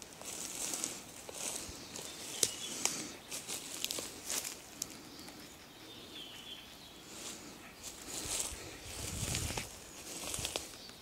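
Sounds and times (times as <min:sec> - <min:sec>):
steps on dry twigs: 0:00.0 - 0:05.4, 0:07.1 - 0:11.0
faint high bird calls: 0:00.4 - 0:09.1.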